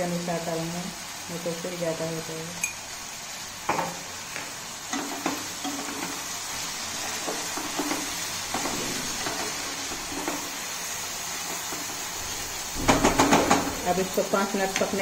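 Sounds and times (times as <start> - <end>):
vegetables sizzling in oil: 0.0 - 15.0
spatula scraping pan: 4.9 - 13.7.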